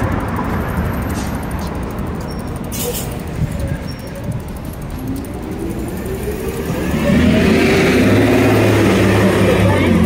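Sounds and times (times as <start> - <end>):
low traffic rumble: 0.0 - 10.0
vehicle engine accelerating: 4.8 - 10.0.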